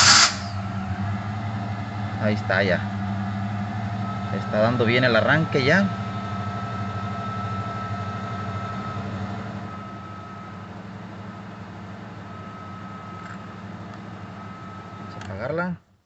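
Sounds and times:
car engine idling: 0.0 - 16.0
faint high whine: 3.8 - 15.6.

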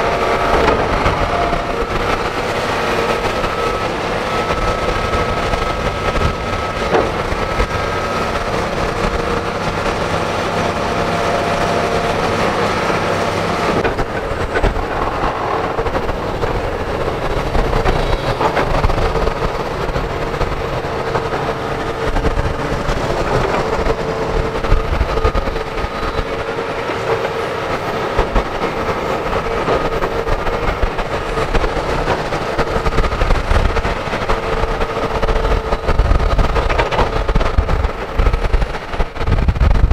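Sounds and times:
excavator diesel engine: 0.0 - 39.9.

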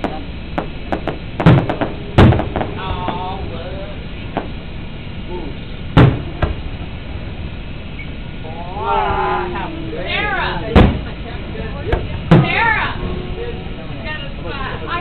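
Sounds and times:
faint fireworks pops: 0.0 - 3.2, 4.3 - 4.6, 6.0 - 6.7, 10.7 - 11.2
distant fireworks booming: 0.0 - 8.4, 10.7 - 11.2.

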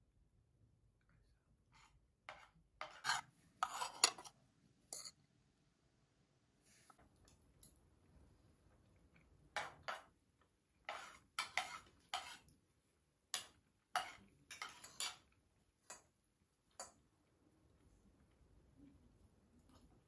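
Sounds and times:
cutlery clinking on dishes: 2.3 - 4.3, 4.9 - 5.2, 9.5 - 10.2, 10.8 - 12.4, 13.3 - 16.1.

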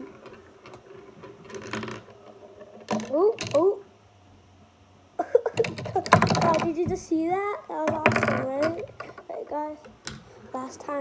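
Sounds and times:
marble rolling down plastic run: 0.0 - 3.7, 5.6 - 7.0, 7.8 - 9.3.

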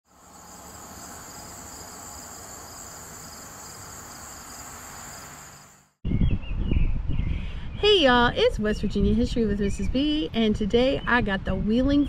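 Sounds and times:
high insect trill: 0.0 - 6.0
pulsing insect trill: 0.0 - 6.0.

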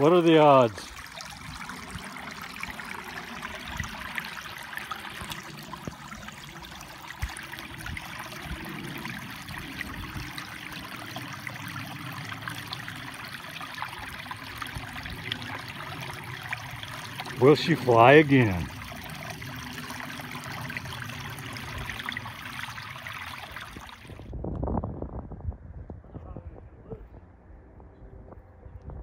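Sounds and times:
stream trickling over rocks: 0.0 - 24.3.

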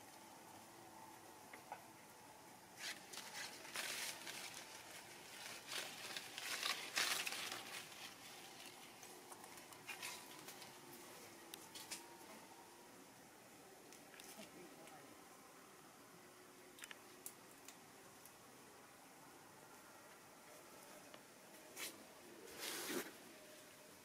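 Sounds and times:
leaves and twigs rustling: 2.7 - 12.6.

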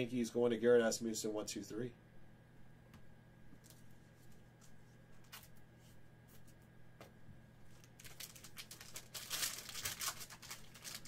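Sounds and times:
wrapper crinkling: 7.8 - 11.0.

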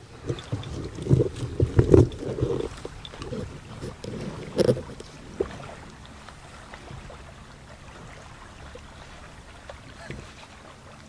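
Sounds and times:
small waves lapping: 0.0 - 11.0
wind: 0.0 - 11.0.

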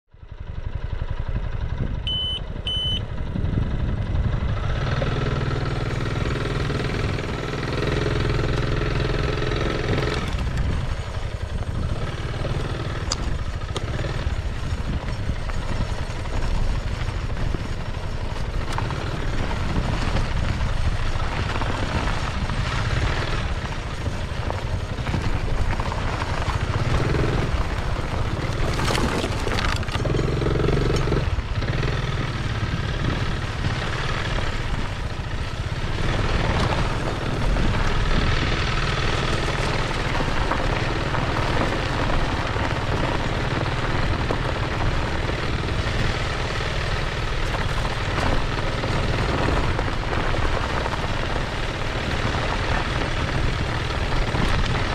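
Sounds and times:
scooter engine running: 0.2 - 54.9
wheel kicking up dirt: 1.7 - 54.9
short high beeps: 2.1 - 3.1
tyres on gravel: 4.2 - 54.9.

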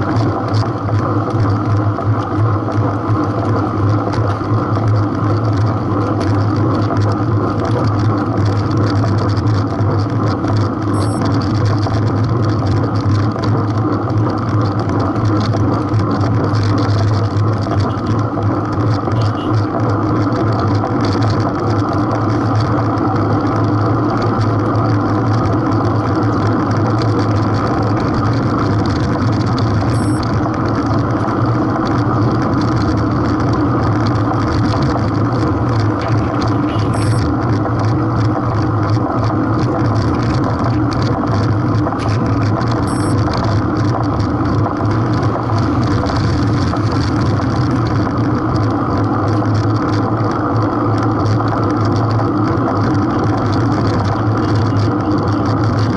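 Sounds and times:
engine-like drone: 0.0 - 55.9
short high beeps: 10.9 - 11.3, 19.2 - 19.6, 29.9 - 30.3, 36.6 - 37.3, 42.8 - 43.2.

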